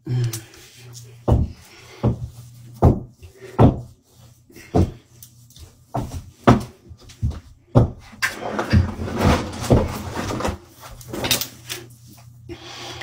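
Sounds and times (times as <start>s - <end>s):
boots stomping on hard floor: 1.3s - 3.9s, 5.9s - 8.1s.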